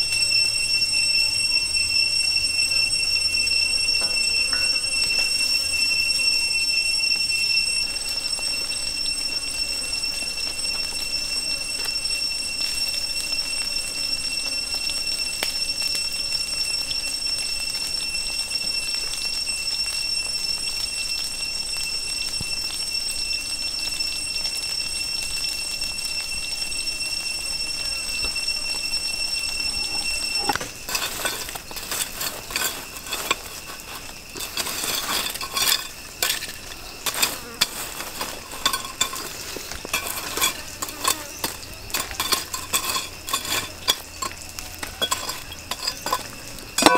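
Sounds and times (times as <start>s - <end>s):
insects droning: 0.0s - 46.9s
machete clattering in charcoal: 4.0s - 5.7s, 29.7s - 46.9s.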